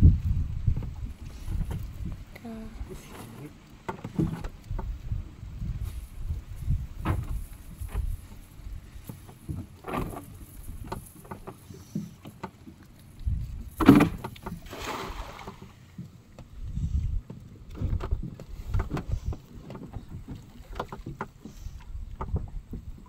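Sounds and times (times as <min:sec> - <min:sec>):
wind rumble on microphone: 0:00.0 - 0:03.1, 0:04.0 - 0:12.1, 0:13.0 - 0:23.0
net splashing into water: 0:13.8 - 0:15.8.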